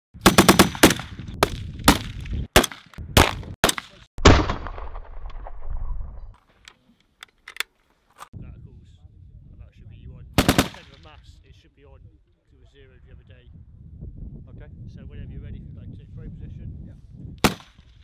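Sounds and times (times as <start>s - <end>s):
rifle shots: 0.2s - 5.7s, 10.4s - 11.0s, 17.4s - 17.8s.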